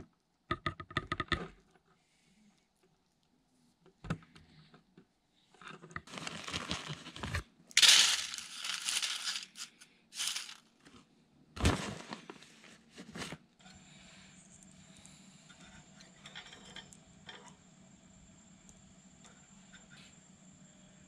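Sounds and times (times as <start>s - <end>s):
wood chips sprinkled on foil: 6.1s - 7.2s, 7.8s - 10.6s
foil crinkling and rustling: 6.1s - 10.6s.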